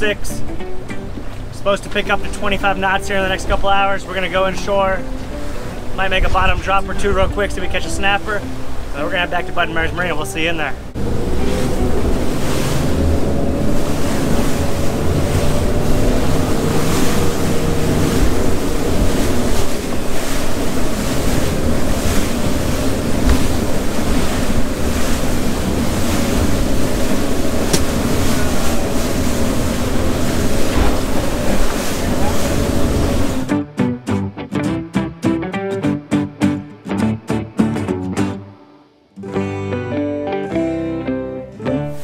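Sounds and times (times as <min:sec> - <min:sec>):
boat engine drone: 0:00.0 - 0:33.5
waves splashing against hull: 0:00.0 - 0:33.5
wind on microphone: 0:10.9 - 0:33.5.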